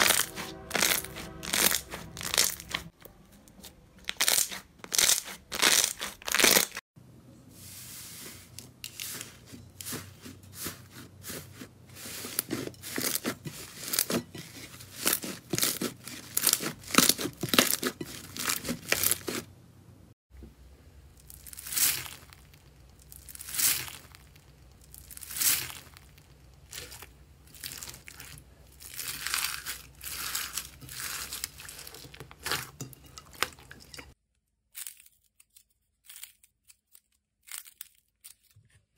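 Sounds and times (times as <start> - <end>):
slime sticky tearing: 4.1 - 6.8
slime squelching: 7.6 - 19.5, 21.2 - 34.1.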